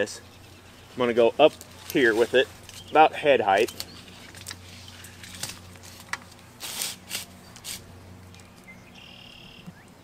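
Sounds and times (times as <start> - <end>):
low steady hum: 0.0 - 10.0
rope scraping on bark: 0.9 - 7.9.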